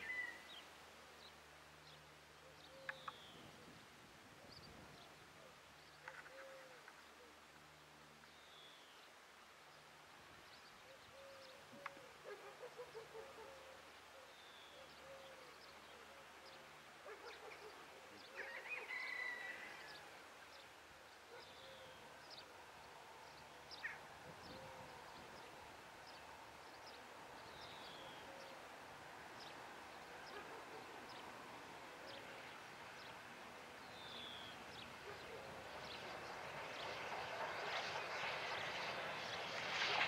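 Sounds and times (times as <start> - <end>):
birds chirping: 0.0 - 3.5.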